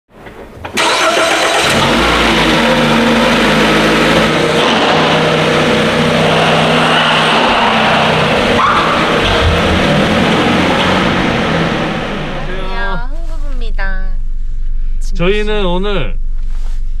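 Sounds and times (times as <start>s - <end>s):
engine running: 0.7s - 13.4s
dense rushing noise: 3.6s - 12.9s.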